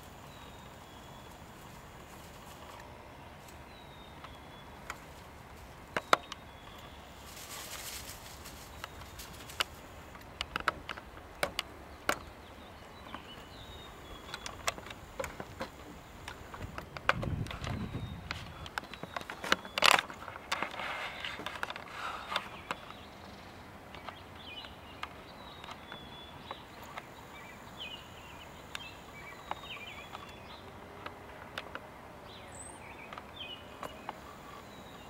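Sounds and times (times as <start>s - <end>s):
sharp clicks and crackles: 5.9s - 12.3s, 13.0s - 23.1s.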